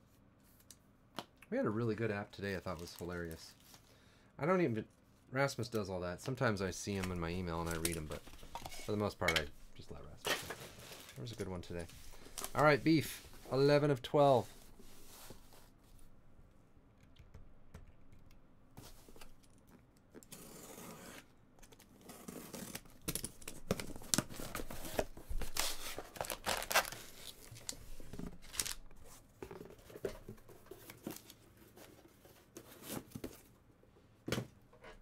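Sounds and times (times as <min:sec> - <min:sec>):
cardboard tearing and rustling: 0:22.0 - 0:28.8.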